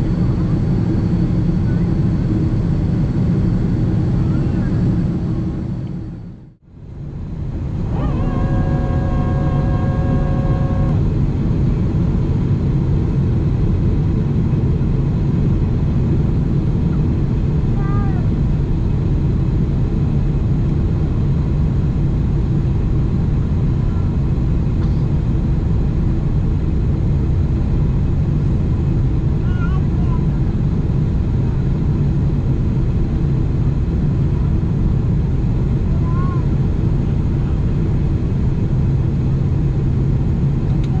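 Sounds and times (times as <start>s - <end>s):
airplane cabin engine roar: 0.0s - 41.0s
faint steady tone: 7.8s - 11.1s.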